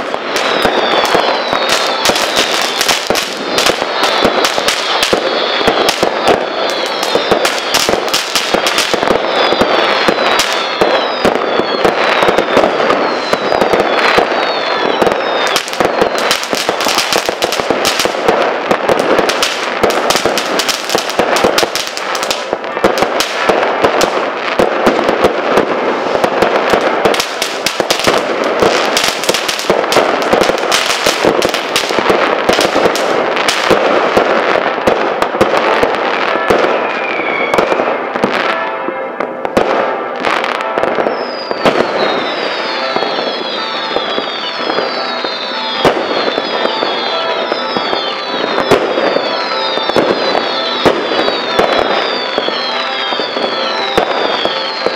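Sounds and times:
fireworks crackling and banging: 0.0s - 54.9s
short falling whistles: 9.2s - 16.3s, 36.9s - 37.6s, 41.1s - 54.9s.

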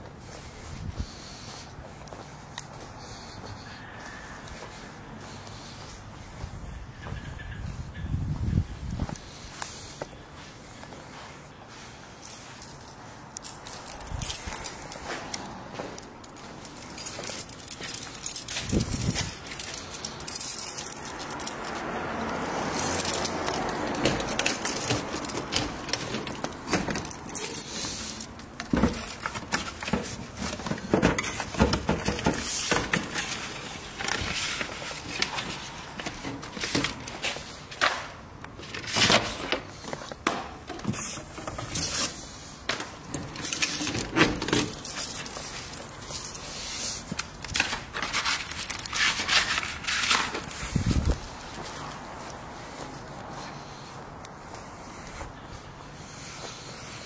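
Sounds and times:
keys jangling on ring: 12.2s - 35.1s, 43.3s - 49.7s
metal mailbox rattling: 22.5s - 37.2s, 42.9s - 46.5s.

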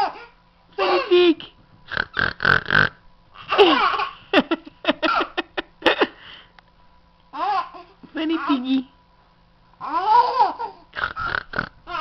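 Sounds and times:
baby laughing: 0.0s - 1.2s, 3.4s - 5.6s, 7.3s - 8.7s, 9.8s - 11.2s.

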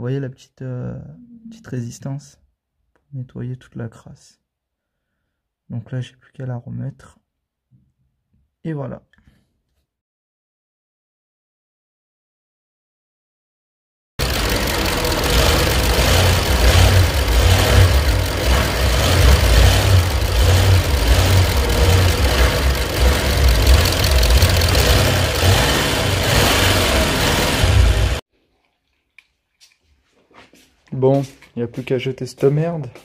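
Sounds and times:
diesel engine running: 14.2s - 28.2s.

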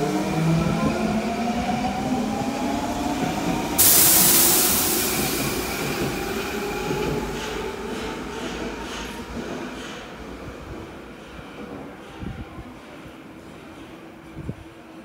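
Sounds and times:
loud hiss: 3.8s - 6.1s.

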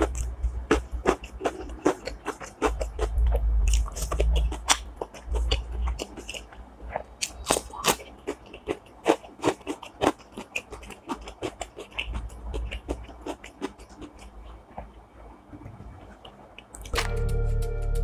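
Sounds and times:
wet mouth sounds: 0.0s - 14.6s
crisp eating crunches: 0.0s - 15.1s.

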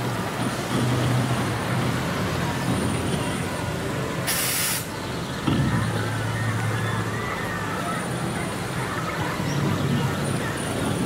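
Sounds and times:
vehicle engine humming: 0.0s - 11.0s
air hissing: 4.2s - 4.9s.

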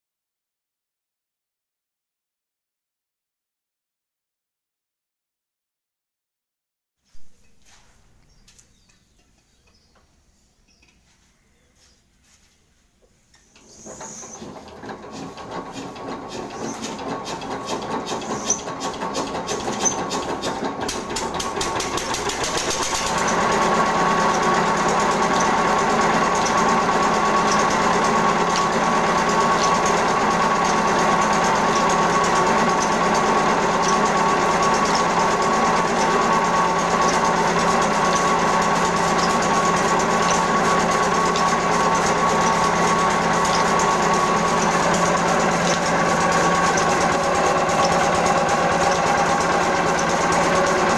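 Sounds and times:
diesel engine running: 13.7s - 50.9s.

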